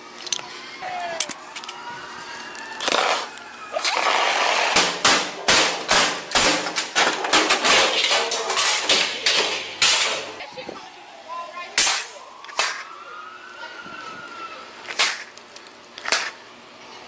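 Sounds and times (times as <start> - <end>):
siren wailing: 0.3 - 4.4, 10.3 - 14.9.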